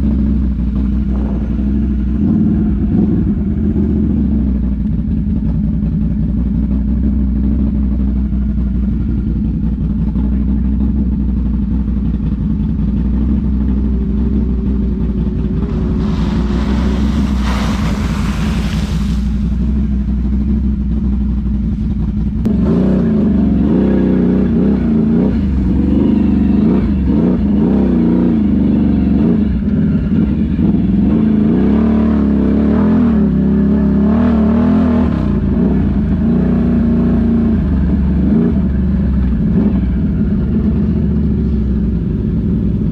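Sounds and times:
off-road vehicle engine running: 0.0 - 42.9
rushing noise: 15.1 - 20.2.

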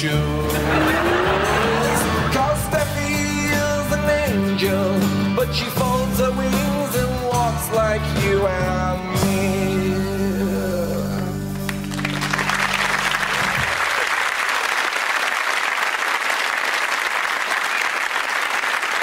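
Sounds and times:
acoustic guitar and band chord: 0.3 - 5.4
audience applause: 0.4 - 3.4, 11.6 - 19.0.

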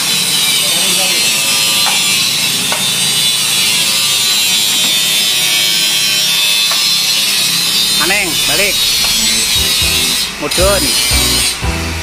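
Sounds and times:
low machine hum: 8.2 - 12.0.

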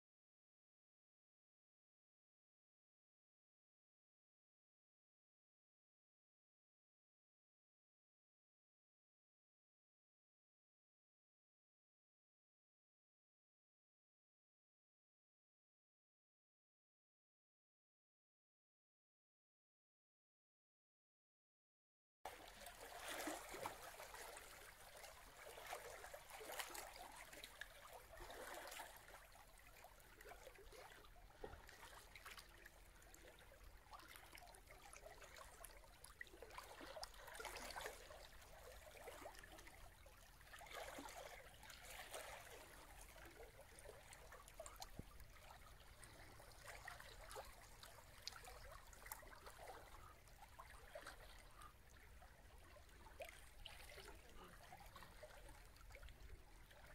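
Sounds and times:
faint water lapping and trickling: 22.3 - 56.9.

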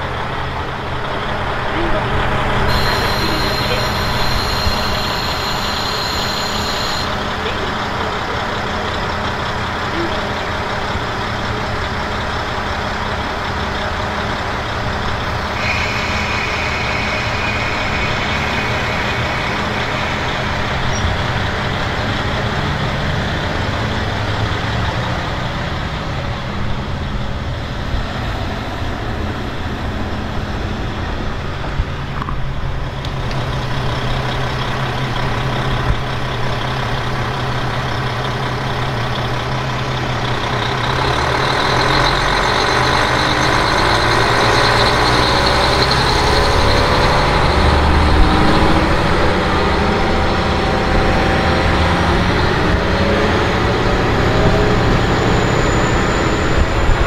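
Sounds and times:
railcar diesel engine running: 0.0 - 57.0
wheels rumbling on rail: 0.0 - 57.0
thin high whine: 2.6 - 8.9, 15.2 - 22.5.

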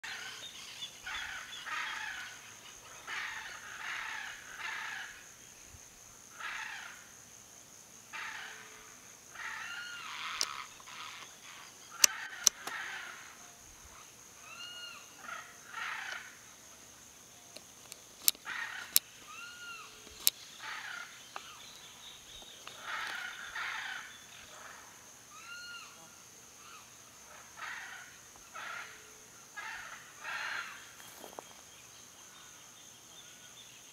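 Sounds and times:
sharp clicks: 17.5 - 19.1, 20.0 - 20.4
birds chattering: 17.5 - 24.5.

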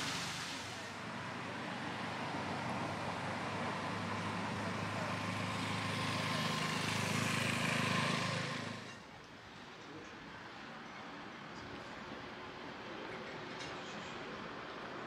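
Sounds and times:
vehicle engine passing by: 0.0 - 9.0.

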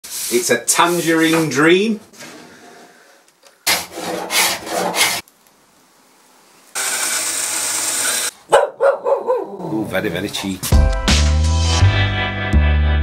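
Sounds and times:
scraping on wood: 3.6 - 5.2.

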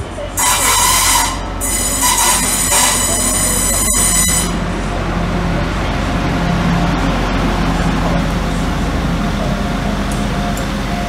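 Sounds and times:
rushing wheel noise: 0.0 - 11.0
train brakes squealing: 0.4 - 4.7
low engine hum: 2.9 - 11.0.

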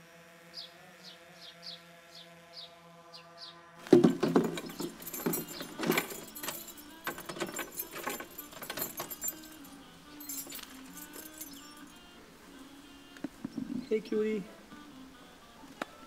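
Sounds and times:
small hard objects clinking: 3.9 - 9.6.

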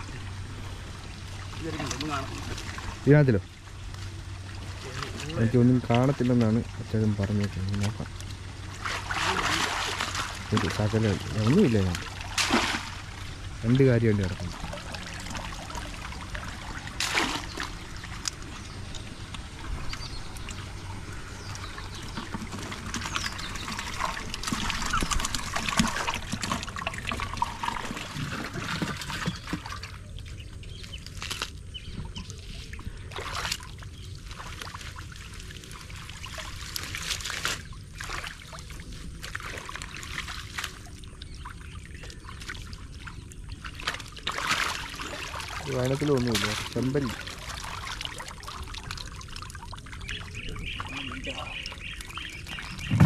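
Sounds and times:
water trickling and sloshing: 0.0 - 53.0
sudden splashes: 8.7 - 18.2.

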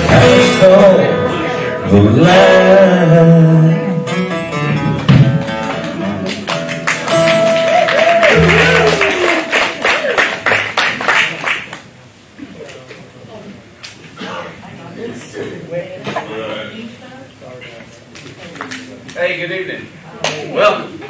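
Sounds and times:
drum kit: 0.0 - 3.3, 4.1 - 9.8
person singing: 0.0 - 4.2
upright bass: 0.0 - 10.2
acoustic guitar strumming: 0.0 - 10.8.

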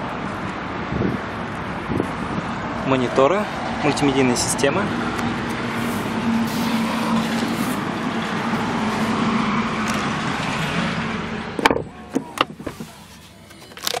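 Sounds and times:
steady rushing noise with hum: 3.8 - 11.5.

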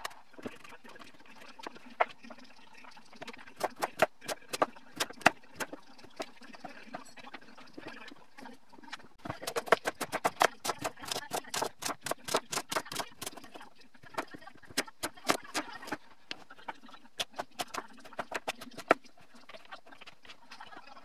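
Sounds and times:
knife chopping on wooden board: 9.3 - 13.2.

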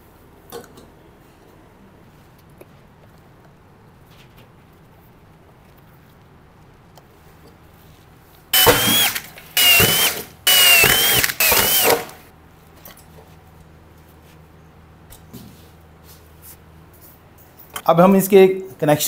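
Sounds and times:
cordless drill whining: 8.6 - 12.3.

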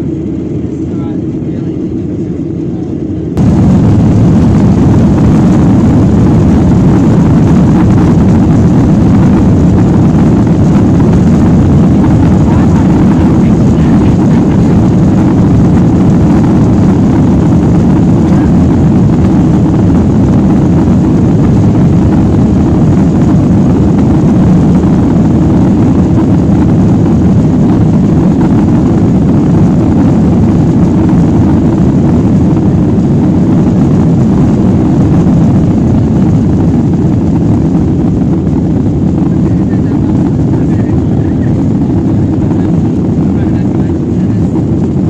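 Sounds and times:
jet engines roaring in cabin: 0.0 - 45.0.

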